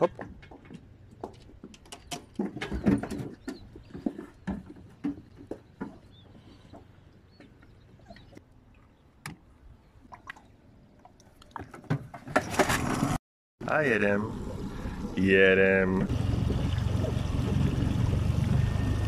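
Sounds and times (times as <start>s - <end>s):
water lapping against dinghy hull: 16.1s - 19.0s.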